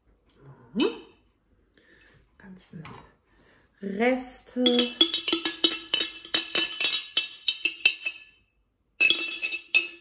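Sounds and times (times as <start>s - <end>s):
spoon clinking in glass jar: 4.6s - 10.0s.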